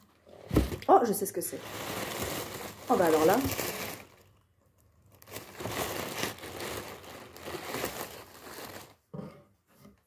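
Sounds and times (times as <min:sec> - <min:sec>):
wrapping paper crinkling: 0:01.1 - 0:09.0.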